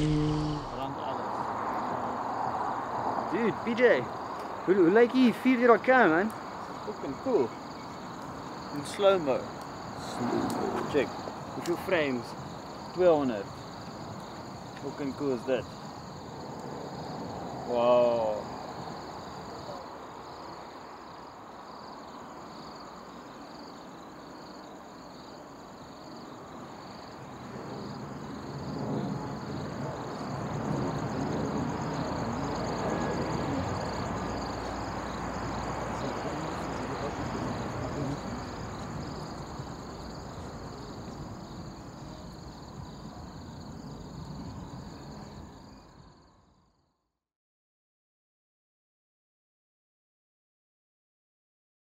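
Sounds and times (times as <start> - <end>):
low rumbling noise: 0.0 - 0.9
insect high trill: 0.0 - 1.2, 31.0 - 43.7
insect lower chirp: 0.0 - 47.0.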